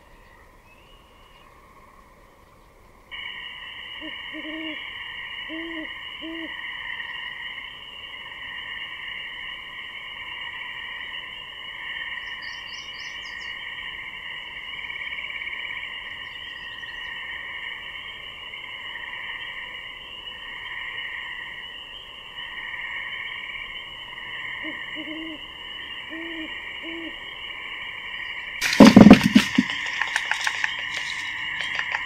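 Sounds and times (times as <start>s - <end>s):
frogs calling: 3.1s - 32.0s
owl hooting: 3.2s - 7.5s, 24.4s - 27.6s.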